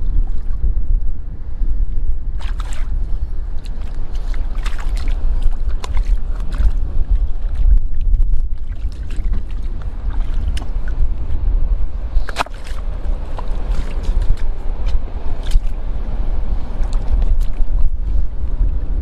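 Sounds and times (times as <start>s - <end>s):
wind rumble on microphone: 0.0s - 19.0s
rocks splashing in shallow water: 2.4s - 11.1s, 12.2s - 15.8s, 16.7s - 17.9s.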